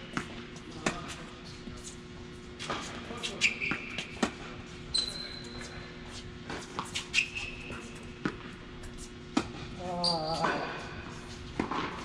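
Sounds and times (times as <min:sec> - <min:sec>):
shoes squeaking on court: 0:02.6 - 0:12.0
tennis ball struck and bouncing: 0:08.2 - 0:08.6.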